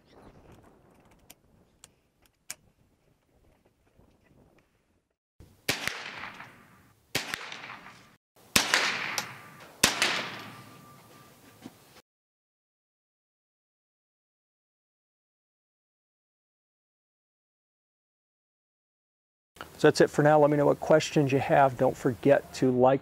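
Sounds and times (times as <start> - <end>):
faint rifle handling clicks: 0.5 - 2.7
rifle shots with echo: 5.6 - 11.0.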